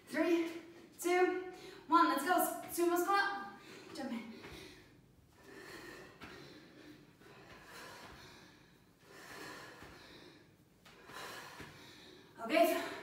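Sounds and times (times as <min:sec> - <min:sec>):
woman breathing hard: 0:03.5 - 0:13.0.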